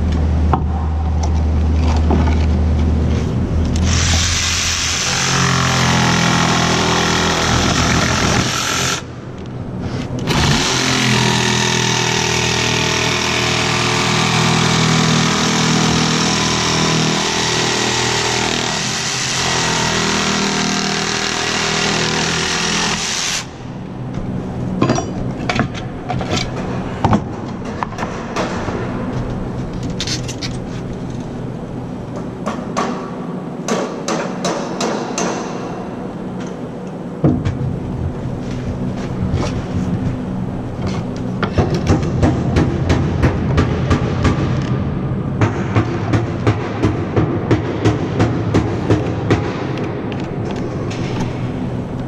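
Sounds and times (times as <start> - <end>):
power tool running: 3.7 - 9.2, 10.2 - 23.7.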